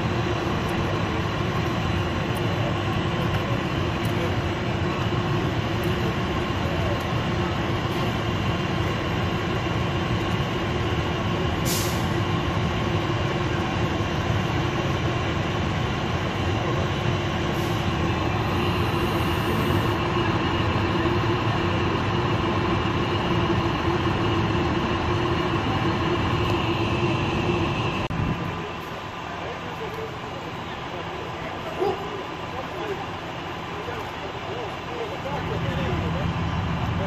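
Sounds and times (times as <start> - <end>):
diesel engine running: 0.0 - 37.0
brief hiss: 11.6 - 12.1.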